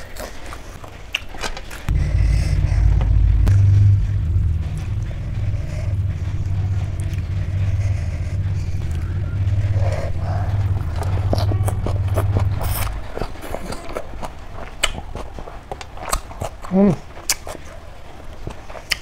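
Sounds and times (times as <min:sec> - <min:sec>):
steady low rumble: 0:01.9 - 0:15.6.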